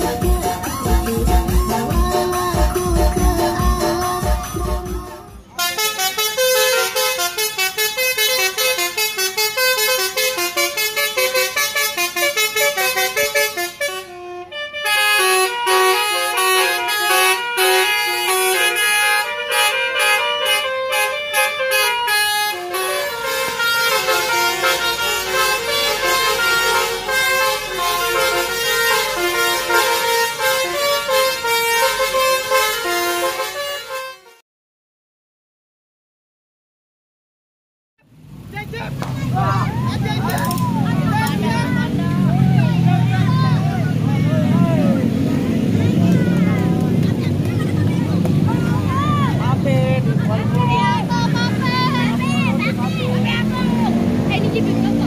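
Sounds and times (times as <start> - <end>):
musical bus horn melody: 0.0 - 34.4.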